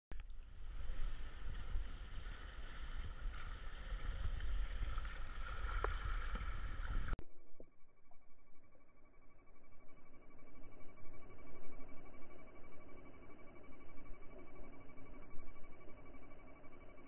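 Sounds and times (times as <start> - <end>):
low rumble: 0.1 - 17.0
water sloshing from paddling: 0.6 - 7.2
paddle knock or splash: 0.9 - 7.2.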